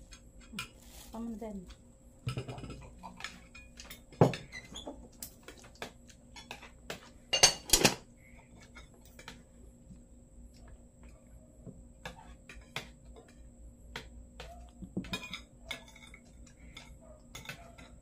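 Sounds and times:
cutlery clinking on plates: 2.3s - 8.0s, 14.4s - 18.0s.

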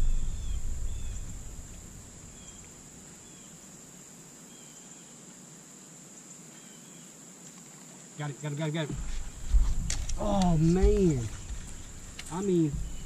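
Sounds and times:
low rumble: 0.0s - 3.1s, 9.0s - 13.0s
insects droning: 0.0s - 13.0s.

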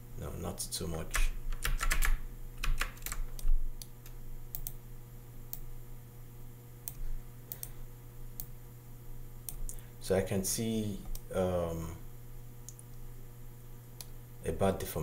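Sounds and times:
keyboard keys tapping: 1.5s - 3.5s.

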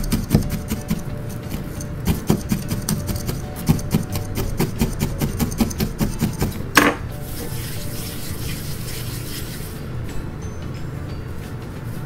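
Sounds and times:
felting needle poking wool: 0.0s - 7.1s
needle scraping on mat: 0.0s - 9.6s.

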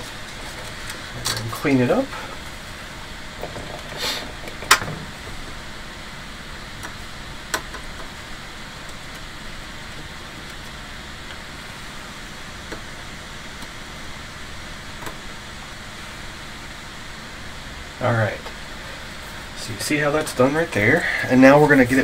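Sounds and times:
low background hiss: 0.0s - 22.0s.

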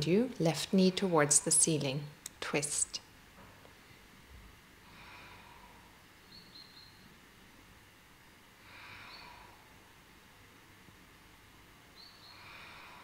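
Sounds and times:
soft slow breaths: 3.5s - 7.2s, 8.3s - 10.7s, 12.0s - 13.0s.

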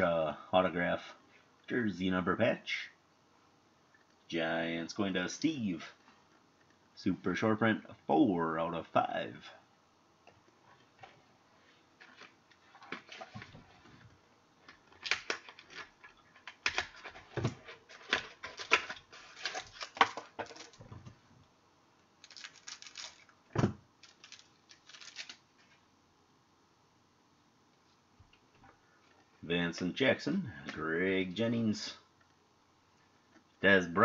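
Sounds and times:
trading cards rustling and flicking: 14.6s - 20.9s, 22.2s - 23.3s, 24.0s - 25.4s
wrapper snap: 22.2s - 23.3s, 24.0s - 25.4s.

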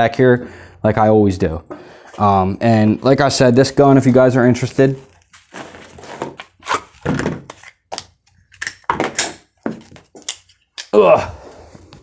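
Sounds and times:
objects knocking and thumping: 7.0s - 7.6s, 8.8s - 10.2s.

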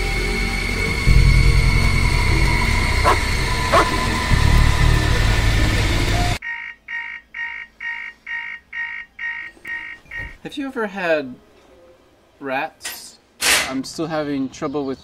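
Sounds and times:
horror trailer soundtrack: 0.0s - 6.4s
electronic alarm beeping: 6.4s - 10.4s.

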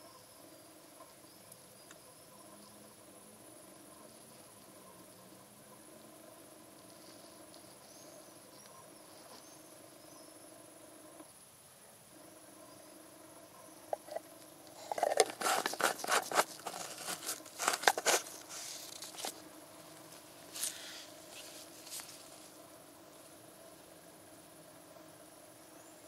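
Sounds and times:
plastic bottle clicks and rustles: 14.0s - 19.4s
plastic cap screwing on: 14.0s - 19.4s.

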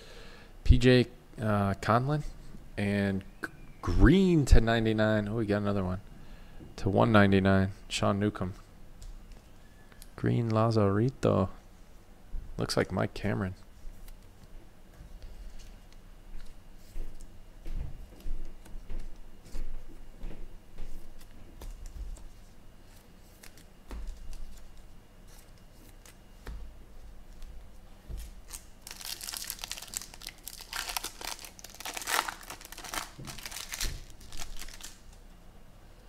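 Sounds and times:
foil wrapper tearing and crinkling: 28.4s - 35.0s.

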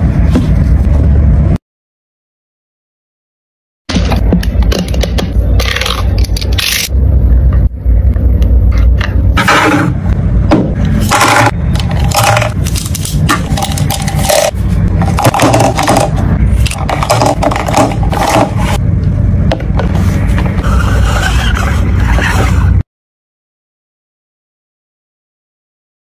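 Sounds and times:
low rumble: 5.2s - 22.8s
makeup brushes clattering: 11.1s - 18.8s.

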